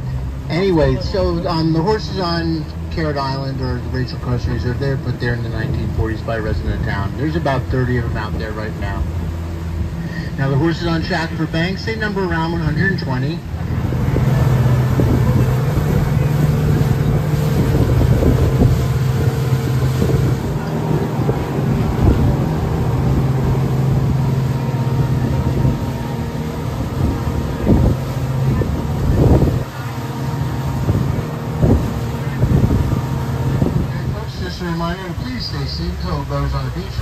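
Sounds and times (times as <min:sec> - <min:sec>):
ferry boat motor droning: 0:00.0 - 0:37.0
wake rushing against hull: 0:04.4 - 0:36.1
wind buffeting microphone: 0:12.8 - 0:35.6.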